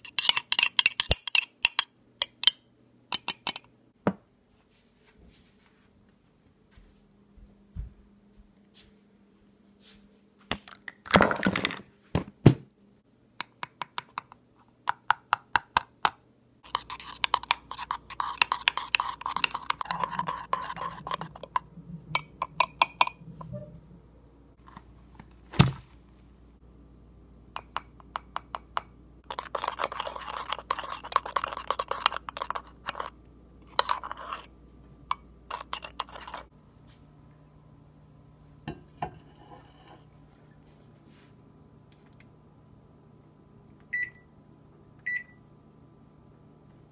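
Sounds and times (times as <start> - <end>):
utensil scraping in ceramic mug: 0.0 - 1.8, 16.6 - 23.8, 29.2 - 34.5, 35.1 - 36.5.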